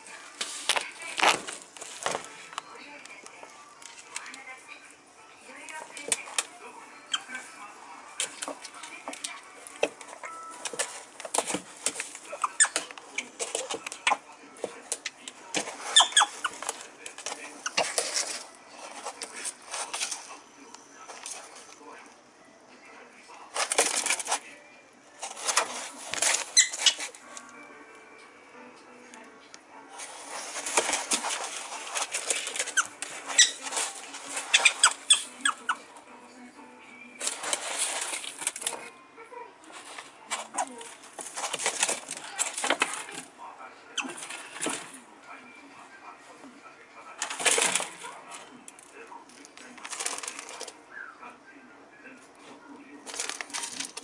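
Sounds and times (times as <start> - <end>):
claws scrabbling on plastic: 30.1 - 35.6, 47.2 - 50.8, 53.0 - 54.0.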